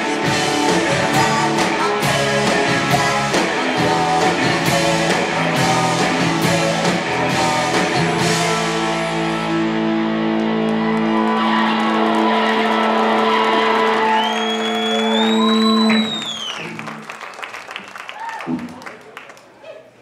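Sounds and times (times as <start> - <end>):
electric guitars holding a chord: 0.0 - 17.1
high whining tone: 14.0 - 16.8.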